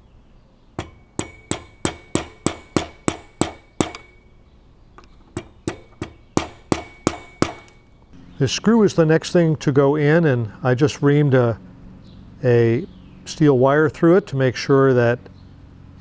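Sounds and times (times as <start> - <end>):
screwdriver tapping metal: 0.8 - 4.3, 5.4 - 7.9.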